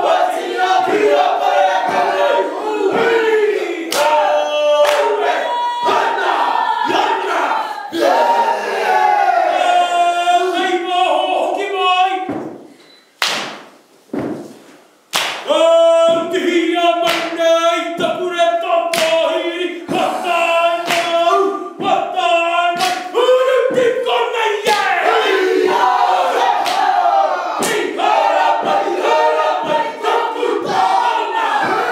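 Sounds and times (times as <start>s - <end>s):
group chanting in unison: 0.0s - 12.3s, 15.4s - 31.9s
chest slaps: 13.2s - 14.5s, 15.1s - 15.5s
feet stamping: 13.4s - 14.8s.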